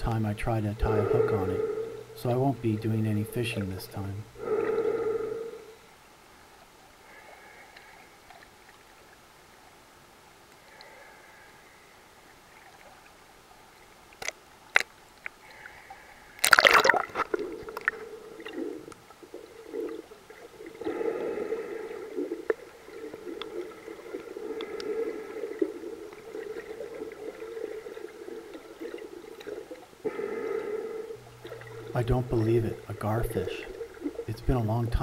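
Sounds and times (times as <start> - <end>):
muffled underwater gurgling: 0.0 - 5.8, 16.6 - 35.0.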